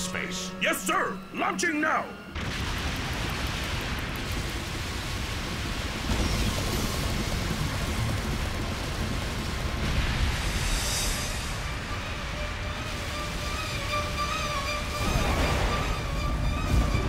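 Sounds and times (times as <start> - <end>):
rumble of crumbling stone: 2.4 - 10.7.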